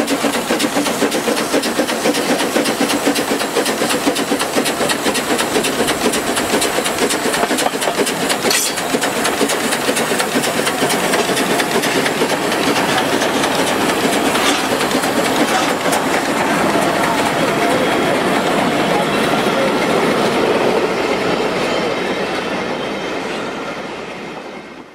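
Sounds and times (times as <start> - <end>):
steam hissing: 0.0 - 22.6
steam locomotive chuffing: 0.0 - 24.9.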